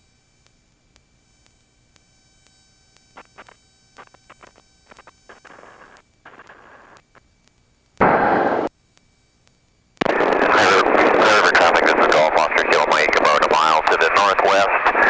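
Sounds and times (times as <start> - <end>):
faint electrical whine: 0.0 - 15.0
radio static: 3.1 - 7.2, 8.0 - 8.7, 10.0 - 15.0
radio knob clicks: 3.2 - 7.6.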